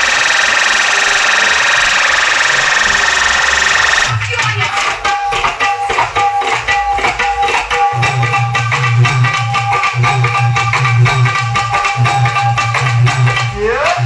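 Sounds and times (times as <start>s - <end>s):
loud dj music: 0.0s - 5.1s, 7.8s - 14.0s
heavy pulsing bass line: 7.9s - 14.0s.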